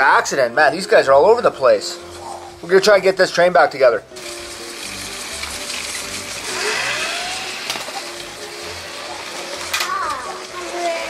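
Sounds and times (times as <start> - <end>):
toy train motor whirring and rattling: 4.2 - 11.0.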